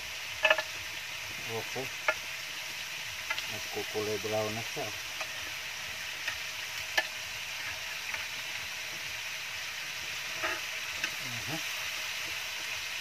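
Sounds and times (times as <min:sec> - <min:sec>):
chicken sizzling in a pan: 0:00.0 - 0:13.0
metal tongs clicking against pan: 0:00.4 - 0:00.7, 0:10.4 - 0:11.2.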